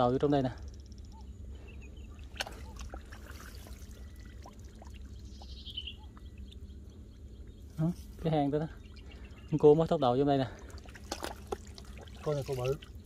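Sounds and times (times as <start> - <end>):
water dripping and trickling: 2.2 - 6.6, 10.4 - 13.0.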